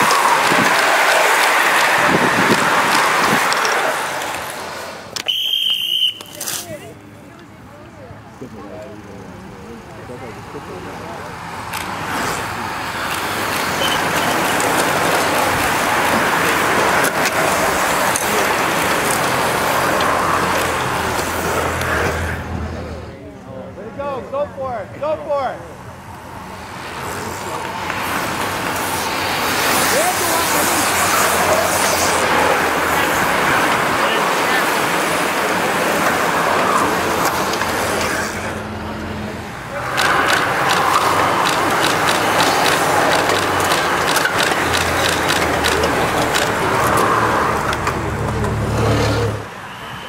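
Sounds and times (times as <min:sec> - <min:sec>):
bicycle tyres hissing on asphalt: 0:00.0 - 0:06.4, 0:12.0 - 0:22.4, 0:26.6 - 0:38.5
freewheel hubs ticking: 0:39.8 - 0:48.0.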